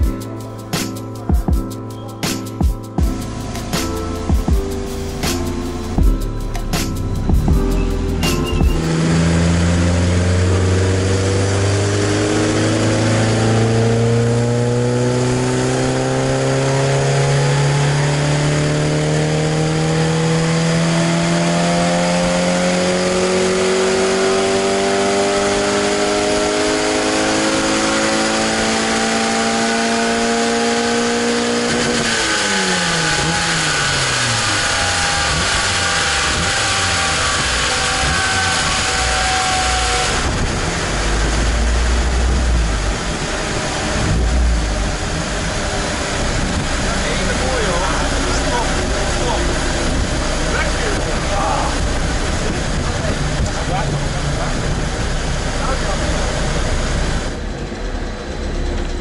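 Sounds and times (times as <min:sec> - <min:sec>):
race car engine revving: 0:06.6 - 0:59.0
broad rushing noise: 0:32.4 - 0:57.4.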